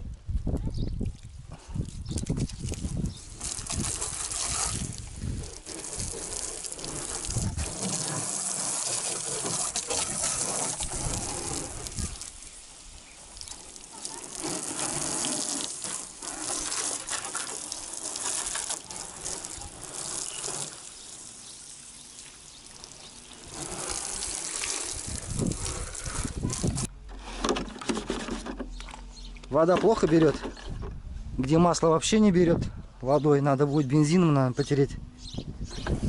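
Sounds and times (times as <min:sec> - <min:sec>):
water splashing on ground: 0:01.0 - 0:26.9
hose water spraying on car: 0:02.3 - 0:26.9.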